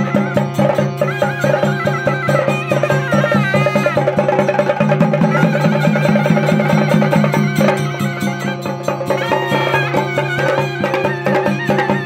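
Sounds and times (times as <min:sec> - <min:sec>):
fast drum strokes: 0:00.0 - 0:12.0
reed pipe playing: 0:00.0 - 0:12.0.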